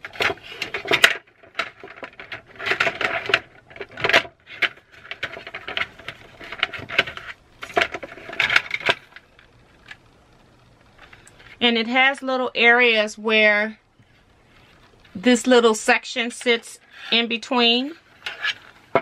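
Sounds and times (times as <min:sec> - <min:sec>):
plastic trays clattering: 0:00.0 - 0:10.0.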